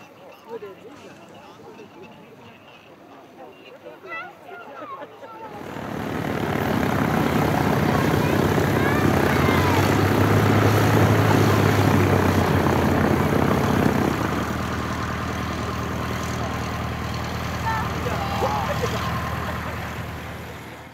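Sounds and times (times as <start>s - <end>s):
light aircraft engine taxiing: 5.4s - 20.9s.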